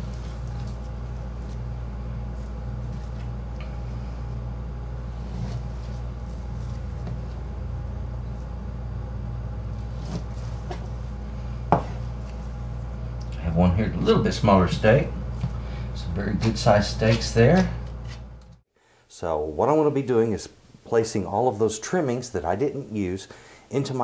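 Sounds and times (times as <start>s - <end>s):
low hum: 0.0s - 18.6s.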